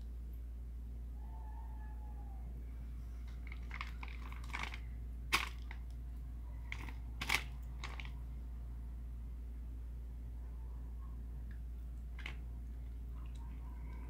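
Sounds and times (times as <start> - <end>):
steady low hum: 0.0 - 14.0
plastic sheet crinkling: 3.3 - 5.9, 6.7 - 8.2.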